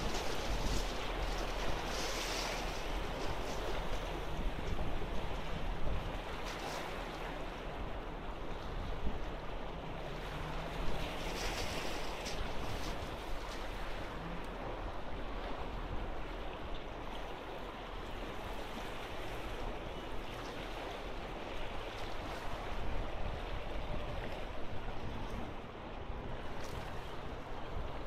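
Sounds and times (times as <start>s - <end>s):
waves splashing on rocks: 0.0s - 7.8s, 10.1s - 14.8s.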